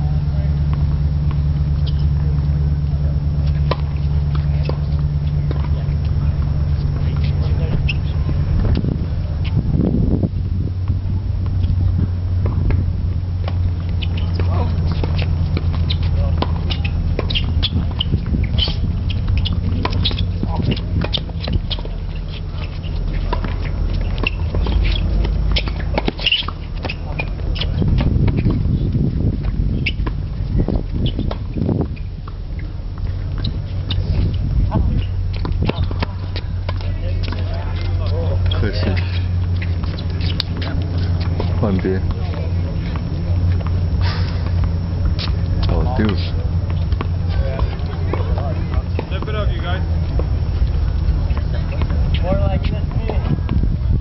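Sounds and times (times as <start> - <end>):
shoes squeaking on court: 0.0 - 9.6, 11.4 - 54.0
wind rumble on microphone: 0.0 - 54.0
rackets striking tennis ball: 12.4 - 53.3
racket hitting tennis ball: 13.4 - 28.8.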